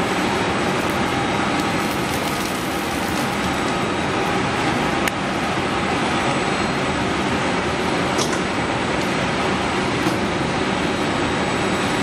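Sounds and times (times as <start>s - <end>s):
packaging machine running: 0.0s - 5.7s.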